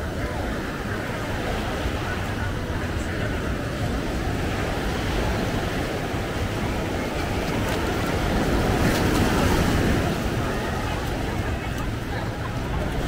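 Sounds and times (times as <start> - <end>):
ocean surf on sandy beach: 0.0 - 13.0
wave breaking: 0.0 - 13.0.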